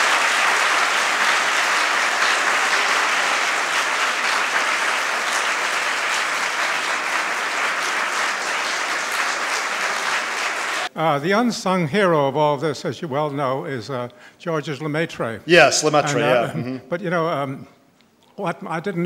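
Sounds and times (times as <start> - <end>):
audience applauding: 0.0 - 10.9.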